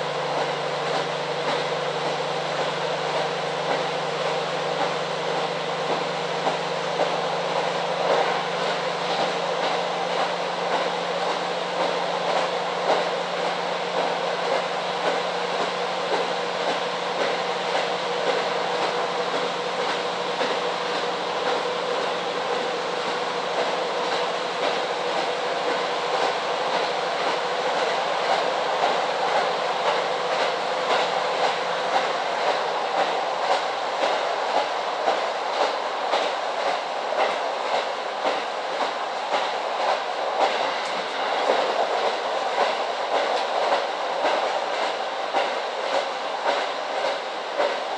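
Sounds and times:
rail joints clickety-clack: 0.0s - 47.9s
train wheels rumbling on rails: 0.0s - 47.9s.

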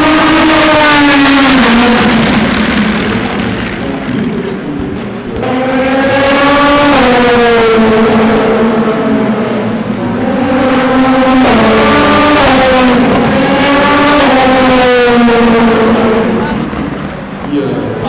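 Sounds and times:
race cars passing: 0.0s - 18.0s.

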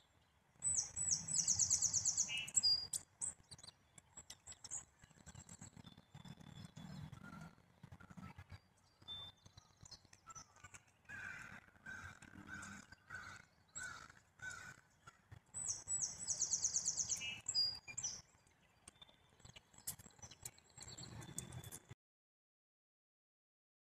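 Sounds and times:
songbirds calling: 0.6s - 7.5s, 8.1s - 21.7s.

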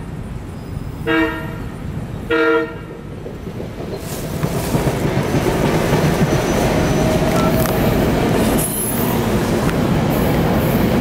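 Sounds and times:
train wheels rumbling on rail: 0.1s - 11.0s
high squeal: 6.4s - 9.3s.

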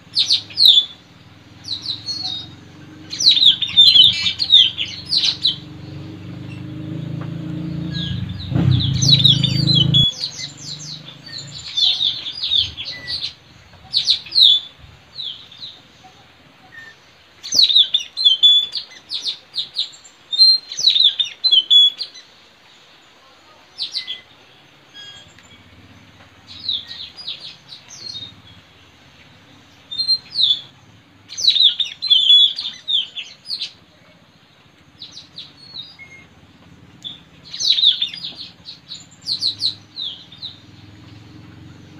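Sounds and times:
parrots chirping: 0.0s - 22.3s, 24.9s - 33.8s, 35.0s - 41.9s
low rumble: 1.2s - 14.0s.

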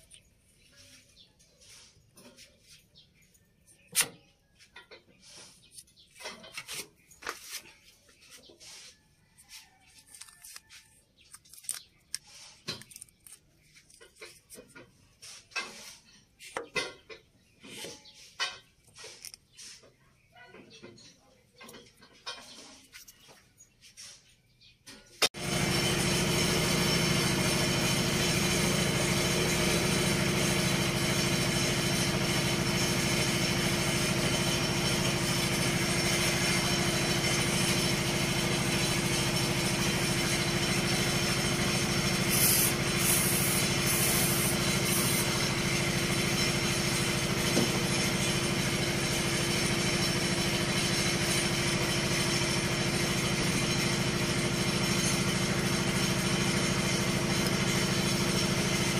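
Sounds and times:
diesel engine idling: 25.4s - 58.9s.

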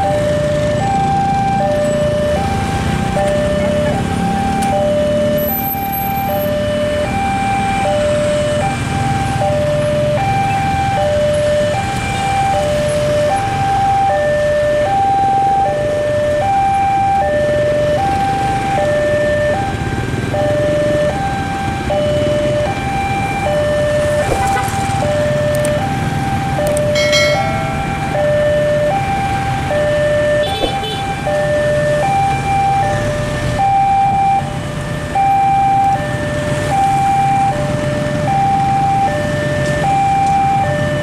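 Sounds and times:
two-tone electronic crossing chime: 26.9s - 28.0s.

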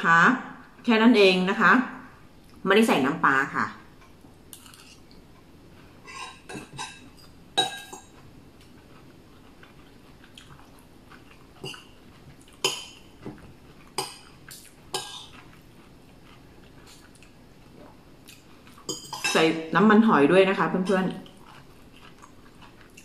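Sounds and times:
metal spoon clinking on plates: 6.1s - 8.2s, 18.9s - 19.5s.

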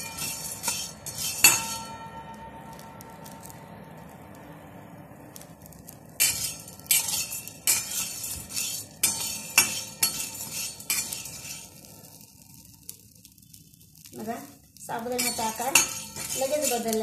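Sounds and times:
metal spatula scraping steel pan: 0.0s - 2.8s, 6.2s - 12.4s, 15.0s - 17.0s
pearls rattling against metal: 14.9s - 17.0s.

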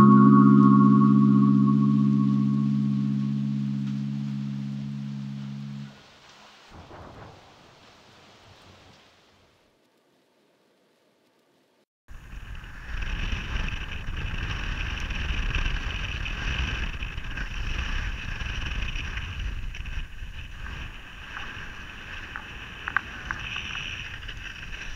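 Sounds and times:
wind buffeting microphone: 12.1s - 24.9s.

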